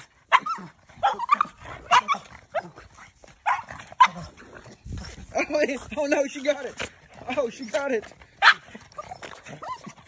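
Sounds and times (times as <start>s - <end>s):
small dogs barking: 0.0s - 5.2s, 8.3s - 10.0s.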